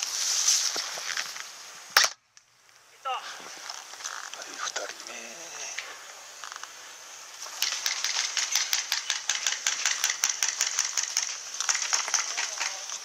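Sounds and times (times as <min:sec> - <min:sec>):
airsoft rifle shots: 0:02.0 - 0:02.2, 0:07.6 - 0:12.9.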